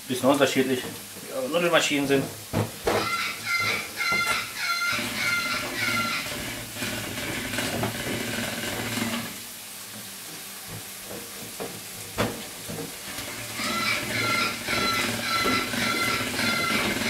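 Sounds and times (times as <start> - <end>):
frying pan sizzling: 0.0 - 17.0
parrots squawking: 2.9 - 6.7, 13.2 - 17.0.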